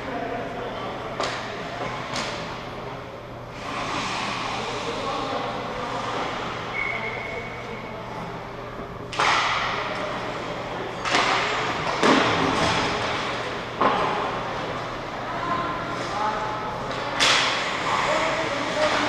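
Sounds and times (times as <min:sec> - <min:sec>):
steady low hum: 0:00.0 - 0:19.0
puck striking arena boards: 0:09.1 - 0:10.1, 0:10.9 - 0:14.7, 0:16.9 - 0:18.1.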